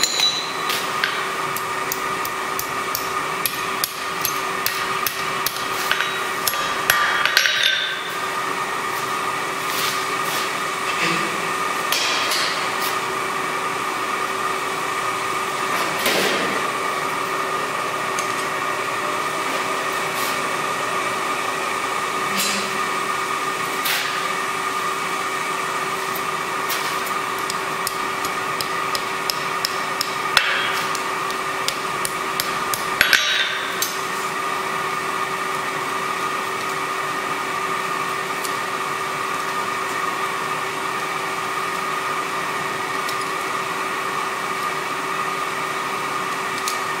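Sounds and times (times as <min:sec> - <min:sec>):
metal clinks on anvil: 0:00.0 - 0:00.8
workshop fan humming: 0:00.0 - 0:47.0.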